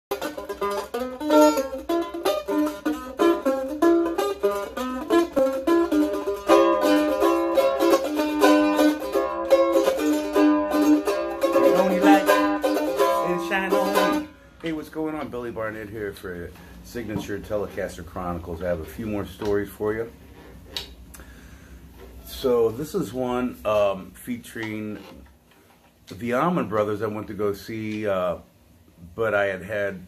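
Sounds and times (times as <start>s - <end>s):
mandolin melody: 0.1s - 15.4s.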